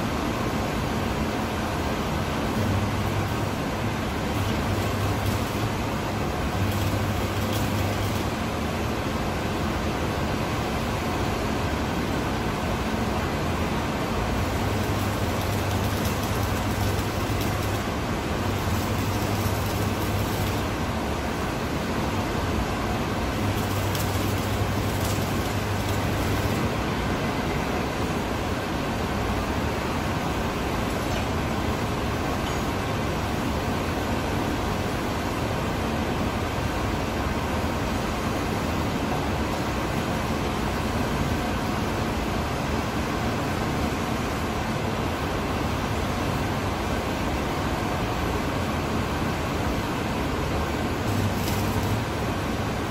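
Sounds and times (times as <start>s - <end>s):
factory hall noise: 0.0s - 52.9s
arc welding buzzing and crackling: 1.4s - 10.4s, 12.8s - 34.0s, 49.9s - 52.9s.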